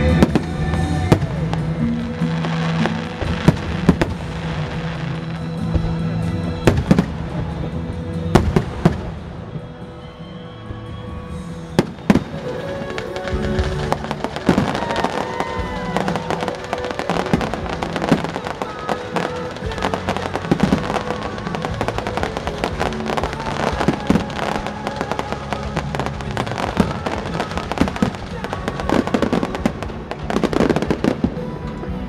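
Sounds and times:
fireworks bursting and crackling: 0.0 - 32.0
music playing: 0.0 - 32.0.

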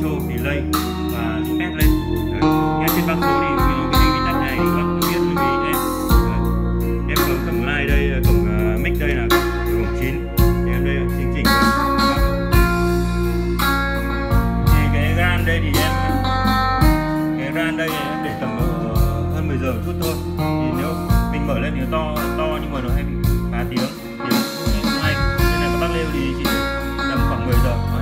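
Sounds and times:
guitar-led music with drums: 0.0 - 28.0.

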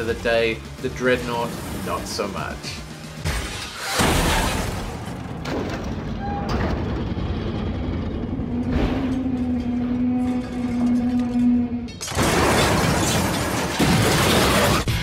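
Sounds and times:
truck crashing: 3.2 - 10.5, 12.0 - 15.0
heavy vehicle rumble: 5.3 - 11.8.

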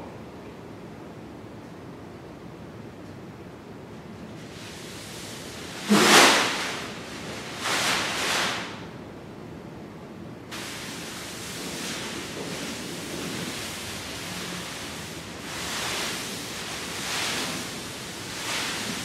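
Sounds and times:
plastic bag rustling: 4.4 - 8.8, 10.5 - 19.0.

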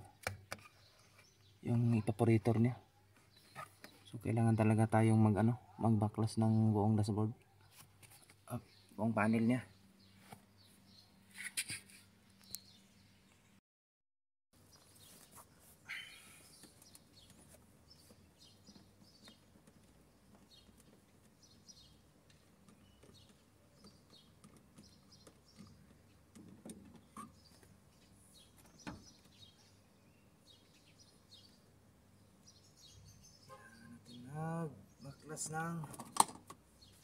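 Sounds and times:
faint bird chirps: 14.7 - 20.8, 32.3 - 35.6.

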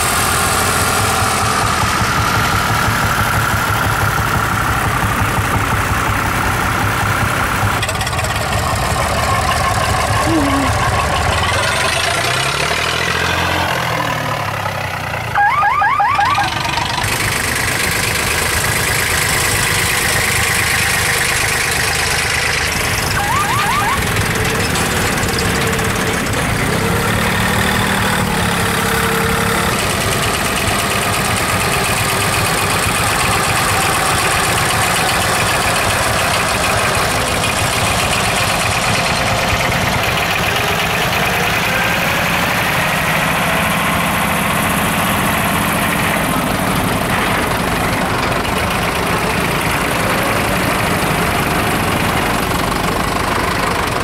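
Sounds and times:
tractor diesel engines passing: 0.0 - 54.0.

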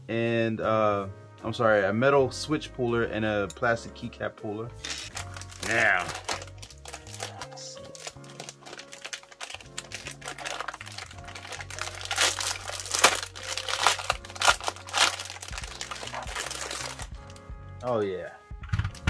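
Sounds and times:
plastic bag crinkling: 4.8 - 17.4.

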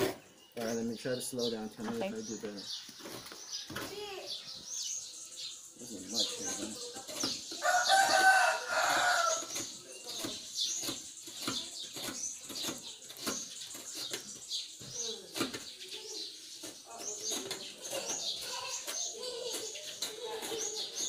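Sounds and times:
small birds chirping: 0.0 - 21.0
coconut scraped on grater blade: 6.3 - 21.0
rooster crowing: 7.6 - 9.4.

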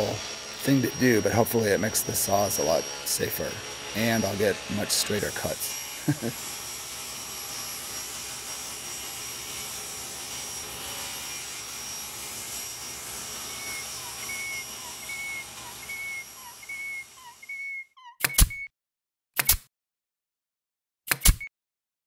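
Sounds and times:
short high squeaks: 13.6 - 18.7.

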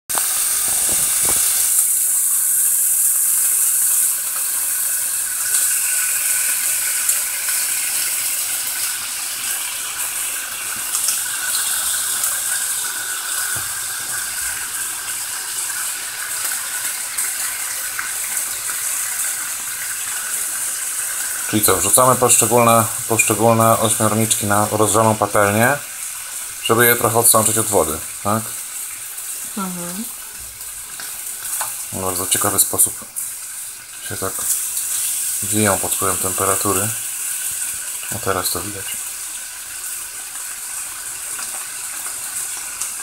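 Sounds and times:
octopus sizzling in frying pan: 0.1 - 43.0.

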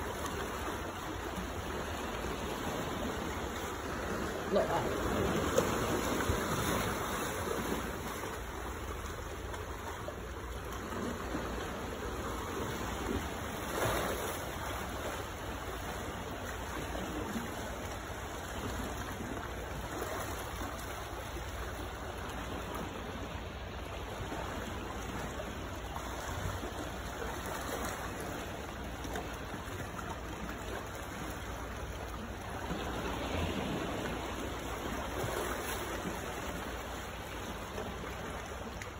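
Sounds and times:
sea water washing among boulders: 0.0 - 38.9.

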